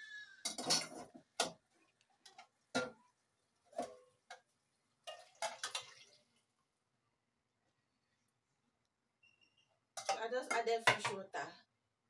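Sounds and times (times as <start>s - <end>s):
cooking pots clinking and knocking: 0.2s - 6.3s, 9.2s - 11.4s.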